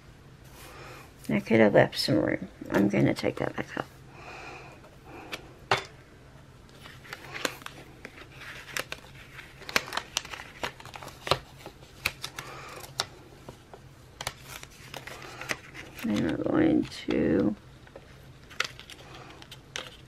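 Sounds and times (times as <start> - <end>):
paper crinkling and rustling: 6.7 - 20.0.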